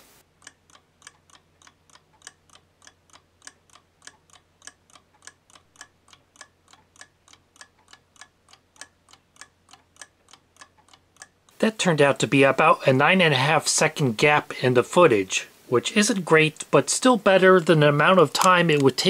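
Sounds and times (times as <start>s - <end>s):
alarm clock ticking: 0.2s - 13.3s.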